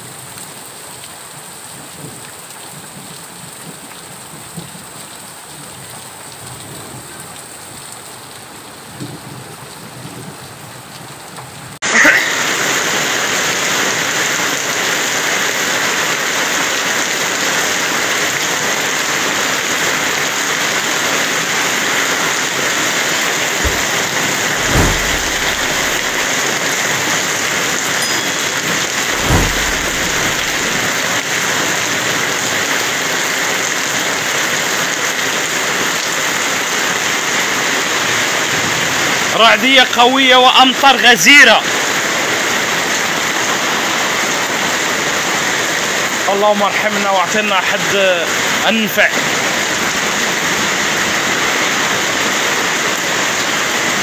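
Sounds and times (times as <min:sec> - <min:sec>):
heavy rain pouring: 0:00.1 - 0:39.9
low rumbles: 0:23.6 - 0:26.5, 0:28.0 - 0:31.0.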